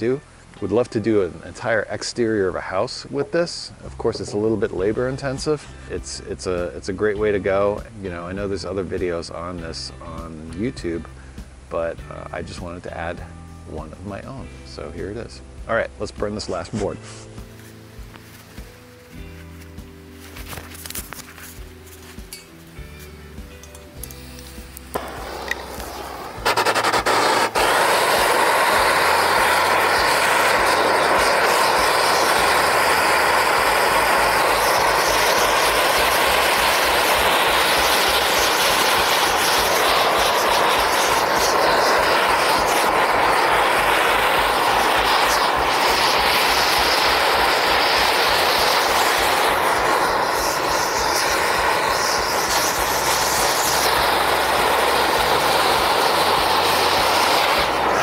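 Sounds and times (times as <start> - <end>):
torch flame rushing: 24.1 - 58.0.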